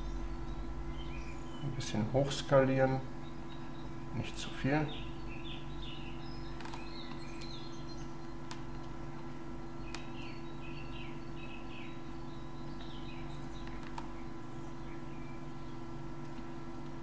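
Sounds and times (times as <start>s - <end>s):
steady low hum: 0.0s - 17.0s
computer keys clicking: 6.5s - 7.6s, 8.4s - 9.0s, 9.9s - 10.1s, 13.6s - 14.2s, 16.2s - 17.0s.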